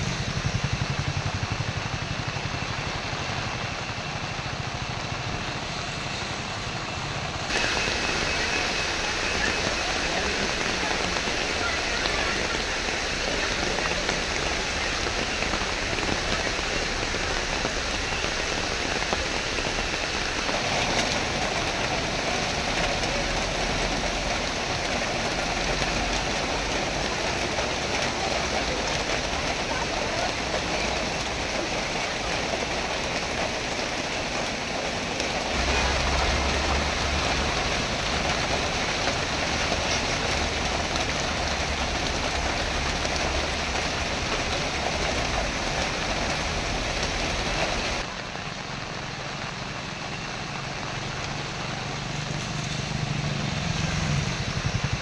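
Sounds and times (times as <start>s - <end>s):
cars passing on wet road: 0.0s - 55.0s
heavy rain pouring: 0.0s - 55.0s
motorcycle engine: 52.0s - 55.0s.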